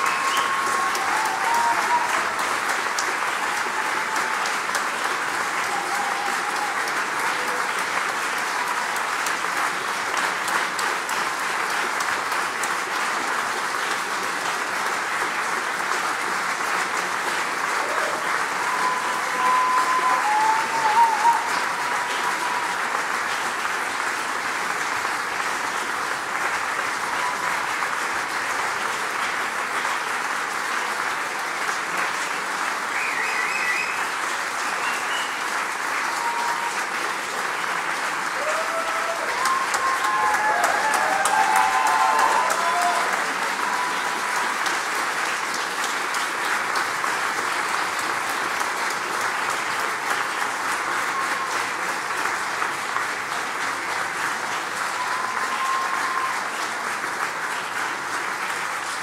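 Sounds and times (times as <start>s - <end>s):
brief cries from crowd: 0.0s - 9.2s, 17.3s - 23.4s, 32.9s - 45.4s, 50.7s - 52.5s, 54.2s - 57.0s
audience applauding: 0.0s - 59.0s.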